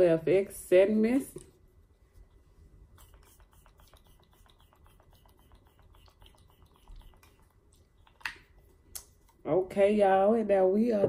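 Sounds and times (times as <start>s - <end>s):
pump spray bottle spritz: 2.9s - 8.3s.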